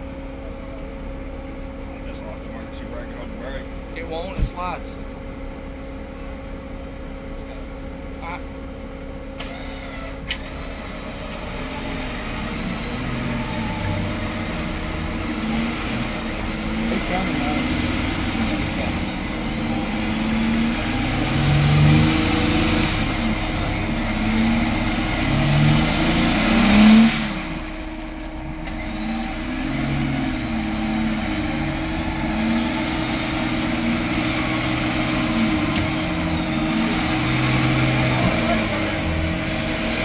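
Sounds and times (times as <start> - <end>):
engine revving: 9.4 - 40.0.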